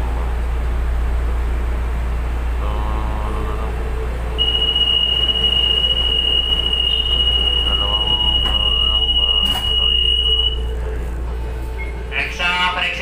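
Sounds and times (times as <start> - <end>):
train car low hum: 0.0 - 13.0
high-pitched tone: 2.6 - 13.0.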